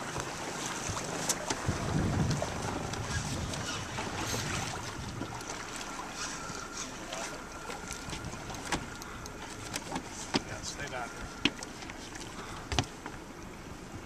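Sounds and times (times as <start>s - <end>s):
water lapping around boat: 0.0s - 14.0s
wind buffeting microphone: 0.9s - 5.6s
faint steady whine: 1.3s - 14.0s.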